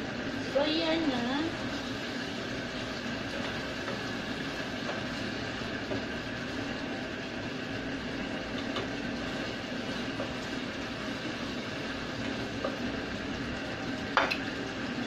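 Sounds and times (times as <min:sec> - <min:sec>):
meat and vegetables sizzling: 0:00.0 - 0:15.0.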